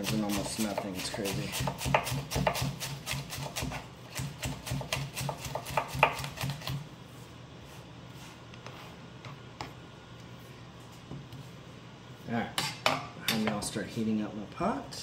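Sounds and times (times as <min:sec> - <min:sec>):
knife chopping on cutting board: 0:00.0 - 0:06.8.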